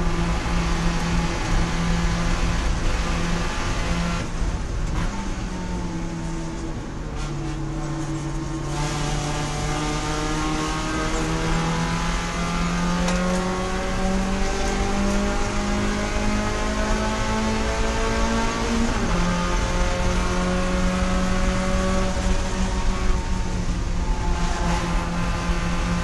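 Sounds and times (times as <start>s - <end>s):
race car engine accelerating: 8.0s - 26.0s.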